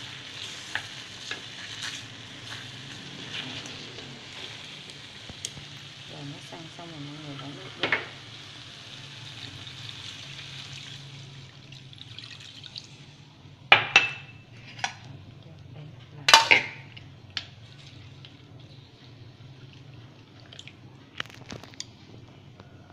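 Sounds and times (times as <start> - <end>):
water pouring into a pan: 7.1 - 13.3
utensils clinking on a pan: 16.2 - 16.9.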